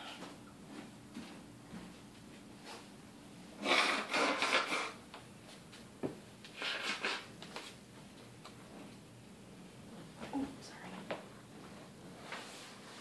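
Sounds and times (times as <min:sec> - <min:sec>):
pencil scratching on paper: 0:03.6 - 0:05.0.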